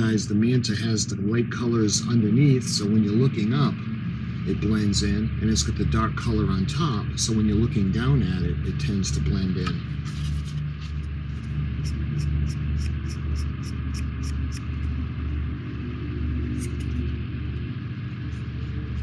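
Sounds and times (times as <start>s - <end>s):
low hum: 0.0s - 19.0s
pad scratching on plastic: 10.0s - 14.6s.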